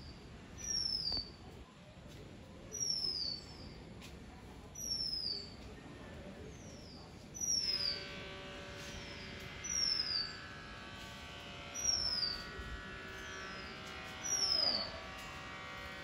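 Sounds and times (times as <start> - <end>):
steady buzzing hum: 7.6 - 16.0
bird fledglings calling: 13.2 - 14.9.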